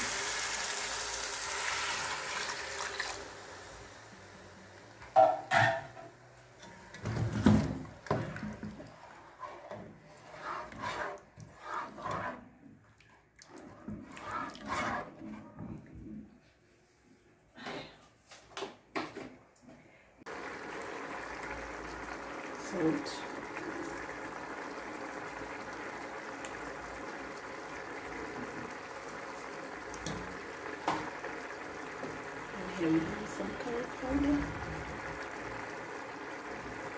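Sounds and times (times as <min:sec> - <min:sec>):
sauce boiling and bubbling: 0:00.0 - 0:05.4, 0:07.1 - 0:16.2, 0:20.3 - 0:36.9
spatula scraping pot: 0:08.3 - 0:12.7, 0:13.6 - 0:15.9.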